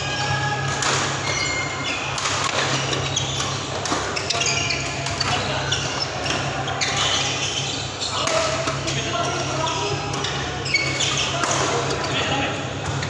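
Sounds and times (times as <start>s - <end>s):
shoes squeaking on court: 1.2s - 13.0s.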